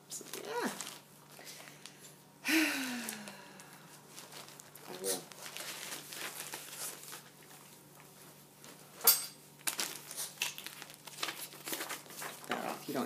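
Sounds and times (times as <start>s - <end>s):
loud paper crinkle: 4.1s - 7.5s, 9.6s - 13.0s
paper rustling: 4.1s - 8.8s, 9.6s - 13.0s.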